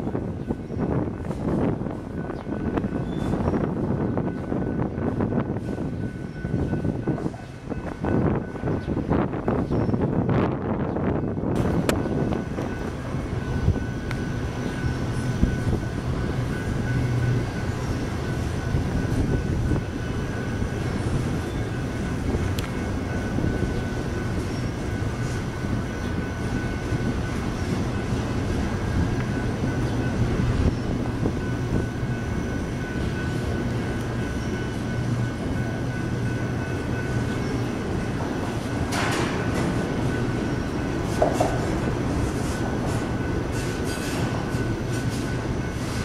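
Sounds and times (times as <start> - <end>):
train wheels rumbling on rail: 0.0 - 46.0
train clicks: 11.3 - 46.0.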